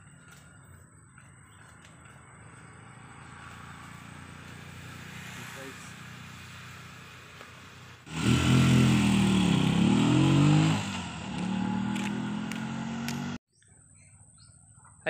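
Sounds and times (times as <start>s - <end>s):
small engine revving: 2.5s - 13.4s.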